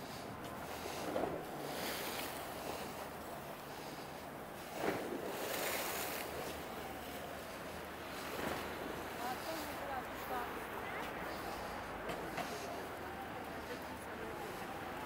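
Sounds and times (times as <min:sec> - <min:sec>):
waves washing against shore: 0:00.0 - 0:15.0.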